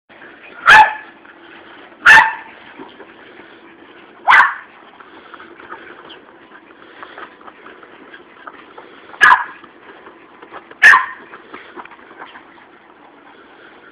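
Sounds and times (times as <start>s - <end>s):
dog barking: 0.6s - 1.1s, 2.0s - 2.5s, 4.2s - 4.7s, 9.2s - 9.6s, 10.8s - 11.2s.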